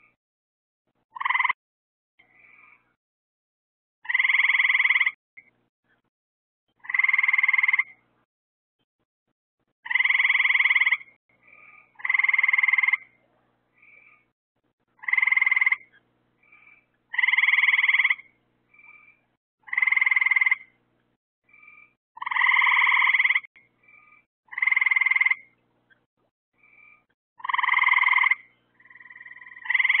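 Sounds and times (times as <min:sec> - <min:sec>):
faint frog calls: 0:01.1 - 0:01.6, 0:04.0 - 0:05.5, 0:06.8 - 0:08.0, 0:09.8 - 0:14.3, 0:15.0 - 0:20.8, 0:21.5 - 0:26.0, 0:26.6 - 0:30.0
frog trilled calls: 0:01.1 - 0:01.6, 0:04.0 - 0:05.5, 0:06.8 - 0:08.0, 0:09.8 - 0:13.2, 0:15.0 - 0:20.8, 0:21.5 - 0:25.6, 0:26.6 - 0:30.0.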